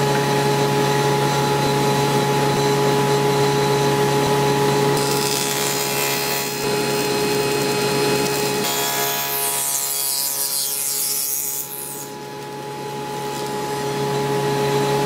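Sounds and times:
table saw humming: 0.0s - 15.0s
saw blade cutting wood: 5.0s - 12.5s.

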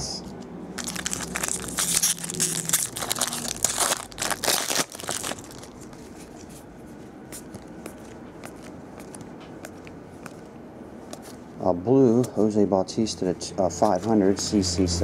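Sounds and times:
foil wrapper tearing and crinkling: 0.8s - 6.0s.

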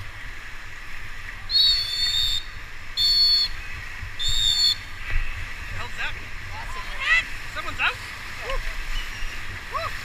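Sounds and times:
shrill whistle blasts: 1.5s - 3.6s, 4.2s - 4.8s.

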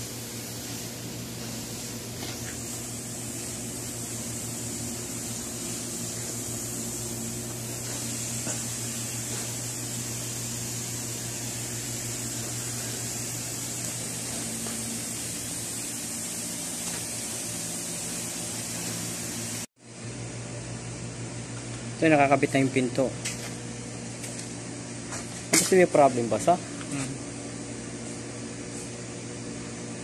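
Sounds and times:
high hiss: 0.0s - 19.7s
steady mechanical hum: 0.0s - 30.0s.

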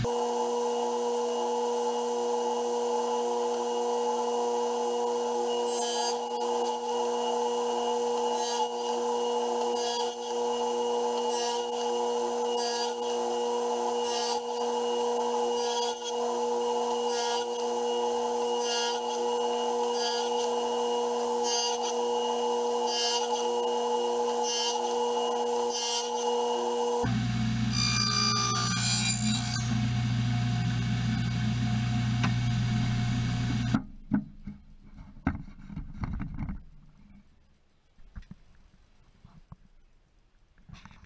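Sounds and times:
table saw running: 0.0s - 33.8s
saw blade rasping through wood: 8.0s - 26.7s, 27.8s - 29.8s.

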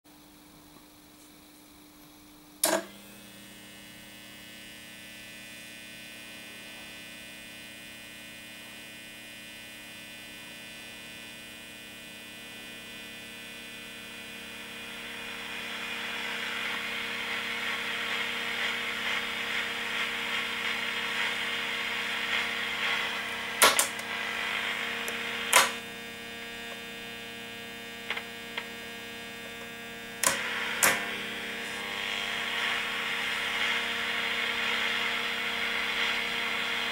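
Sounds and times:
radio hum and static hiss: 13.2s - 36.9s
radio switch click: 23.6s - 24.2s, 25.0s - 25.8s, 30.2s - 31.1s.

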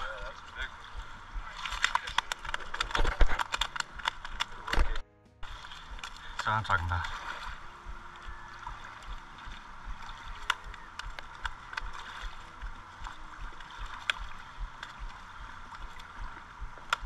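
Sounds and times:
sharp clicks: 1.6s - 5.0s, 10.4s - 12.0s, 13.6s - 17.0s
river current rushing: 5.4s - 17.0s.

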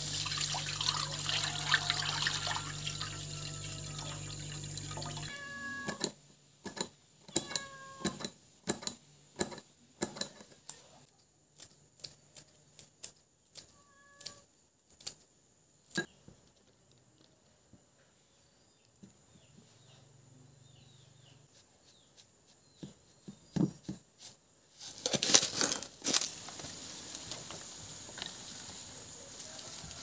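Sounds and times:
water pouring into a frying pan: 0.0s - 5.3s.

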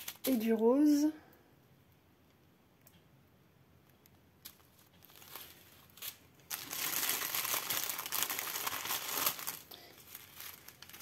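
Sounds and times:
plastic bags crinkling: 0.0s - 0.6s, 4.4s - 11.0s.

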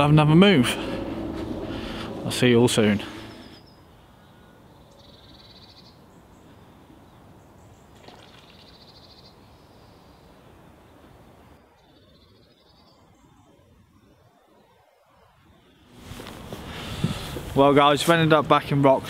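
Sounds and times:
faint low outdoor rumble: 0.0s - 5.1s.

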